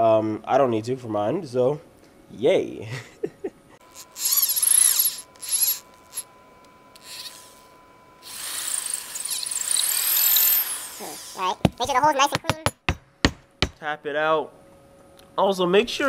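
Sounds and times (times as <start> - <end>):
electric drill boring into wood: 3.8 - 6.3, 6.9 - 11.4.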